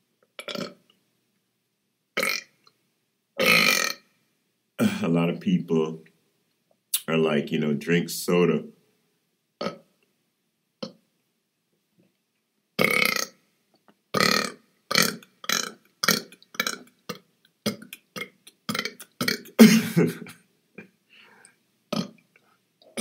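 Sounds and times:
man burping: 0.4s - 0.8s, 2.2s - 2.5s, 3.4s - 4.0s, 4.8s - 5.2s, 9.6s - 9.8s, 12.8s - 13.3s, 14.2s - 16.9s, 17.7s - 20.9s, 21.9s - 22.1s.

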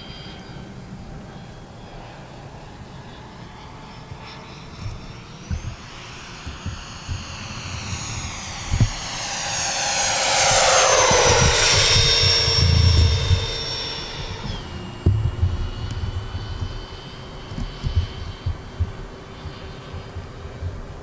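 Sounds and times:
electric ducted fans whining: 0.0s - 21.0s.

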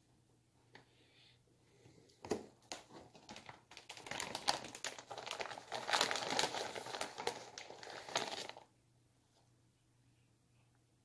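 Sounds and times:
plastic wrapper crinkling: 2.6s - 8.7s.

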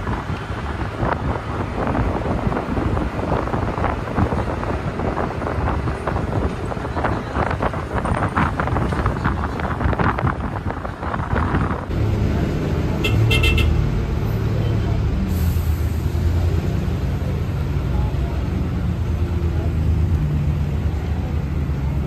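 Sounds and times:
wind buffeting microphone: 0.0s - 12.0s
bus engine running: 0.0s - 22.0s
road noise: 0.0s - 22.0s.

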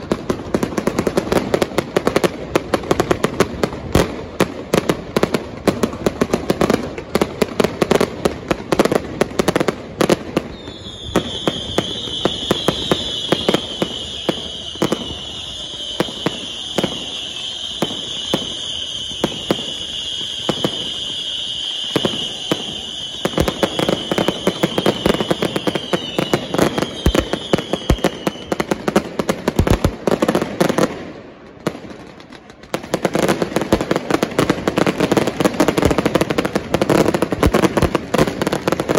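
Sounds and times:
fireworks bangs and crackling: 0.0s - 38.9s
high whistling tone: 10.5s - 28.6s.

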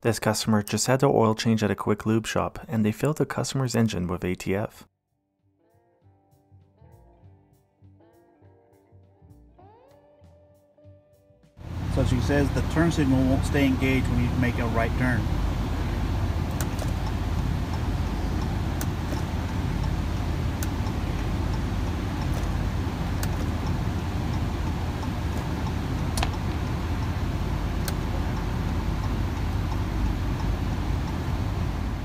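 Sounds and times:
car engine hum inside cabin: 11.6s - 32.0s
turn signal ticking: 11.6s - 32.0s
turn signal stalk clicks: 11.8s - 31.7s.

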